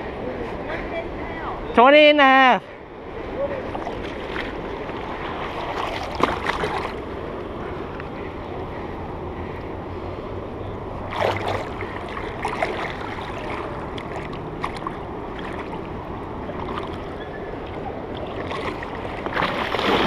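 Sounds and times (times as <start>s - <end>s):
shallow river water flowing: 0.0s - 20.0s
splashing steps in water: 3.7s - 7.0s, 11.0s - 15.9s, 16.5s - 17.1s, 18.2s - 20.0s.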